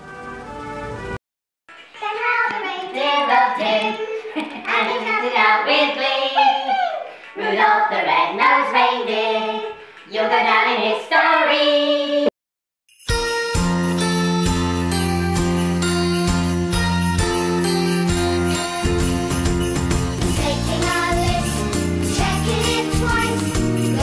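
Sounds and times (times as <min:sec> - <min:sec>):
voices singing: 0:02.2 - 0:12.3, 0:20.4 - 0:24.0
music track with sleigh bells: 0:12.9 - 0:24.0.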